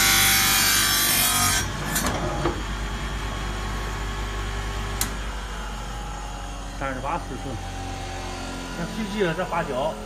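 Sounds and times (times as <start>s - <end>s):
electric motor humming: 4.2s - 10.0s.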